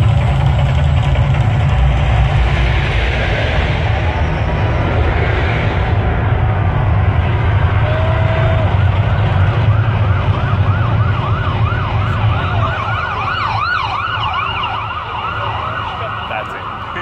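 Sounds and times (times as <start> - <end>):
deep rumble: 0.0 - 16.0
higher siren: 7.6 - 17.0
siren yelping: 7.9 - 17.0.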